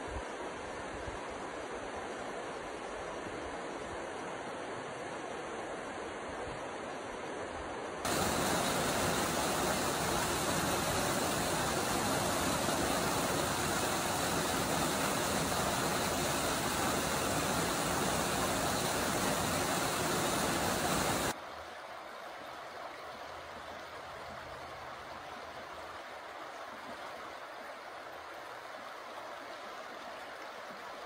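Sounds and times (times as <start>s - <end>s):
water rushing over rock ledge: 8.1s - 21.4s
river flowing over gravel: 8.1s - 31.0s.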